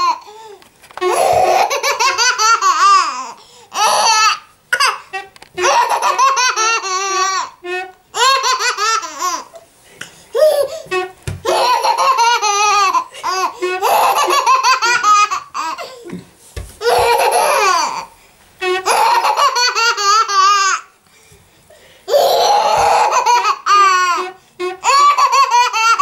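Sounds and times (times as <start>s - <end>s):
baby laughing: 0.0s - 9.6s, 10.3s - 16.2s, 16.8s - 18.2s, 18.8s - 20.9s, 22.1s - 26.0s
dull thuds: 11.2s - 11.6s, 16.1s - 17.4s.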